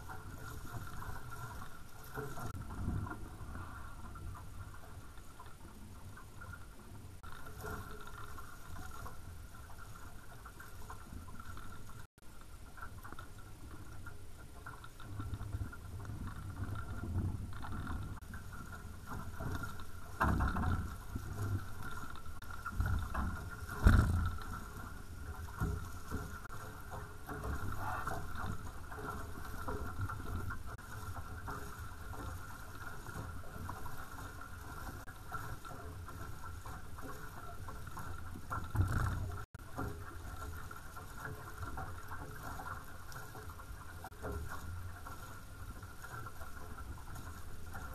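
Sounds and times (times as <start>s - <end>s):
water rushing along hulls: 0.0s - 47.9s
waves thumping against hulls: 0.0s - 47.9s.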